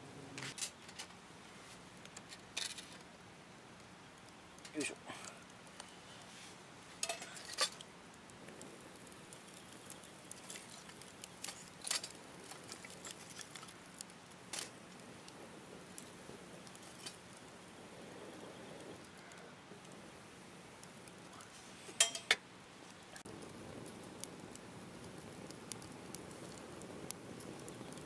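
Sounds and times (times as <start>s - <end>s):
metal utensil clinking on pot: 7.0s - 7.8s, 22.0s - 22.4s.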